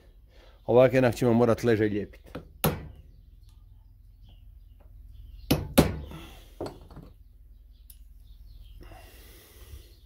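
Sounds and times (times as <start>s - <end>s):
hammer knocking on metal: 2.6s - 3.0s.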